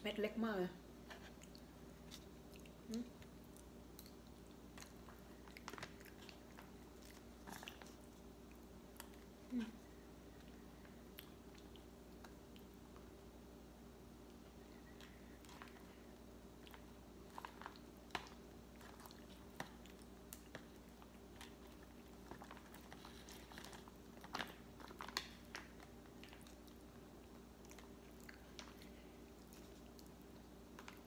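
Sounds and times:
steady low hum: 0.0s - 31.0s
chewing: 1.1s - 13.2s, 14.2s - 31.0s.

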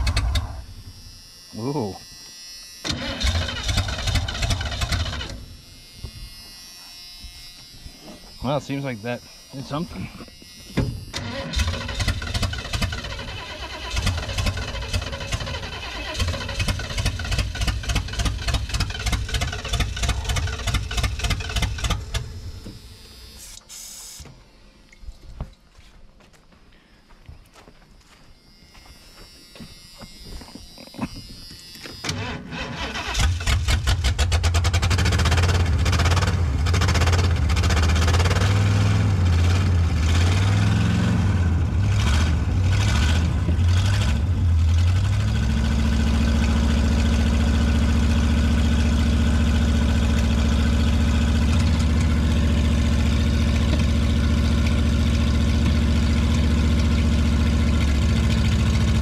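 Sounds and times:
van engine cranking and idling: 0.0s - 0.8s, 2.8s - 5.6s, 11.1s - 22.4s, 32.0s - 59.0s.

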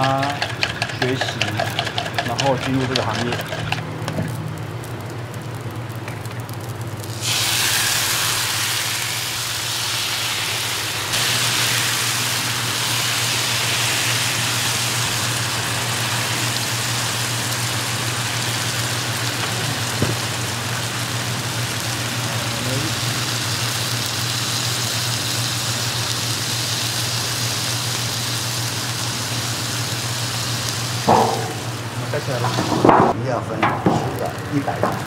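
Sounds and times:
food sizzling in oil: 0.0s - 32.9s
steady low hum: 29.4s - 35.0s.

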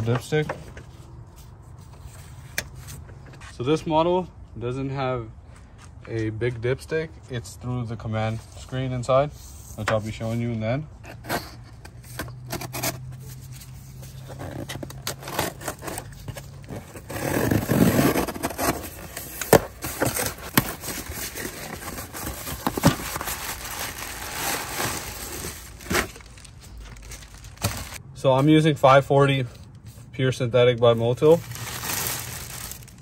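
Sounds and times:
cardboard box being opened: 11.2s - 28.0s
plastic bag crinkling: 16.9s - 28.0s, 31.3s - 33.0s.

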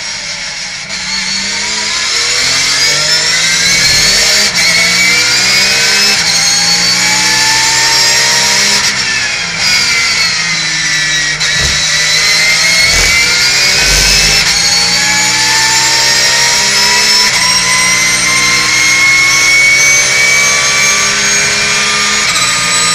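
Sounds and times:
race car engine revving: 3.6s - 4.6s, 11.6s - 15.0s
low thumps: 11.6s - 12.0s, 12.8s - 14.8s.

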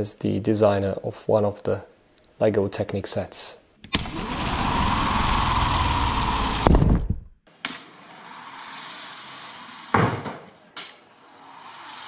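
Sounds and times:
toy car motor whirring: 8.1s - 10.0s, 11.2s - 12.0s.

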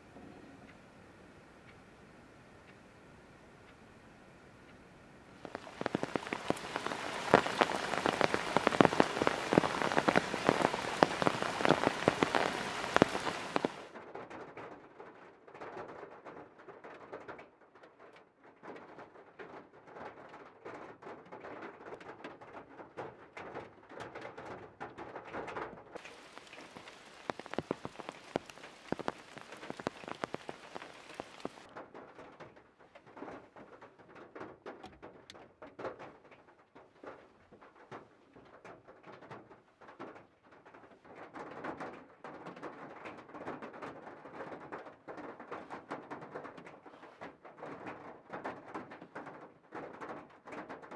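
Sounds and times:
heavy rain hissing: 5.4s - 13.9s, 26.0s - 31.7s
raindrops ticking on van: 5.4s - 13.9s, 26.0s - 31.7s.

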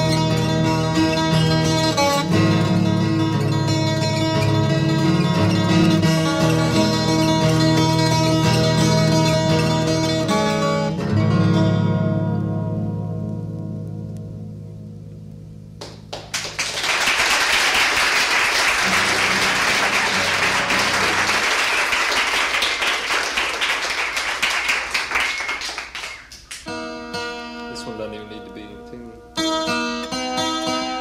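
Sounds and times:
acoustic guitar picking: 0.0s - 16.1s, 18.8s - 21.6s, 26.2s - 31.0s
audience applause: 15.8s - 26.6s.

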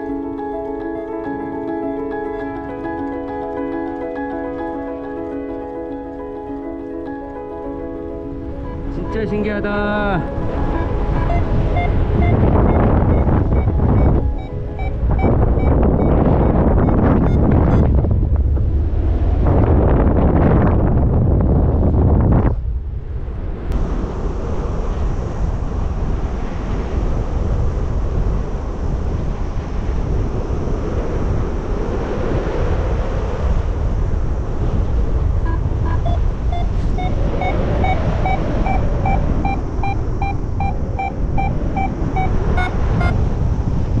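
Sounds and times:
wind rushing over microphone: 0.0s - 44.0s
variometer short beeps: 10.7s - 18.0s, 35.4s - 43.2s.

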